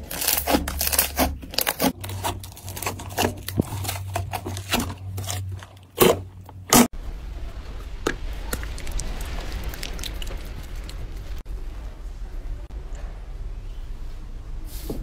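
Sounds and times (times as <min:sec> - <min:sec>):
slime squelching and popping: 0:08.0 - 0:11.2.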